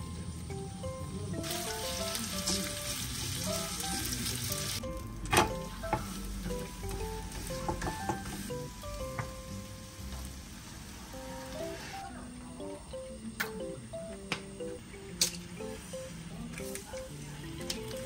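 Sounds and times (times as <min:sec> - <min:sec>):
soft background music: 0:00.0 - 0:18.0
batter sizzling in hot oil: 0:01.4 - 0:04.9.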